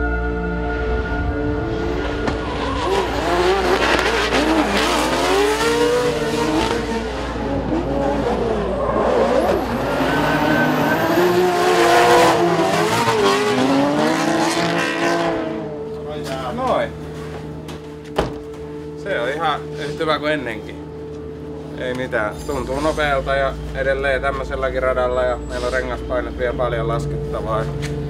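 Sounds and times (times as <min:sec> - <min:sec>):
car engine revving: 0:01.4 - 0:18.6.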